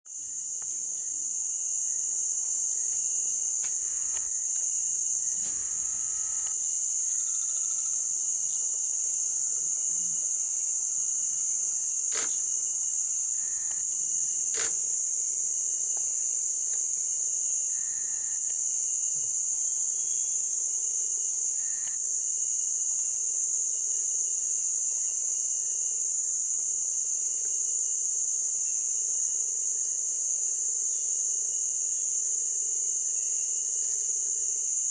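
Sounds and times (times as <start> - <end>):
insects trilling: 0.1 - 22.0.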